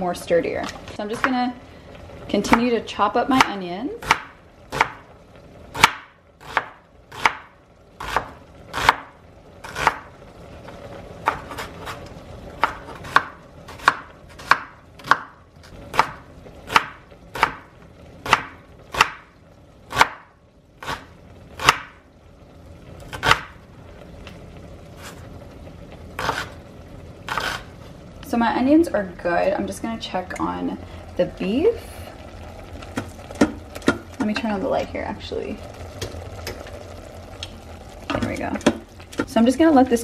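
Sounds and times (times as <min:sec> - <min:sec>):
knife chopping on wooden board: 0:05.8 - 0:09.1, 0:12.6 - 0:17.6, 0:18.2 - 0:19.2.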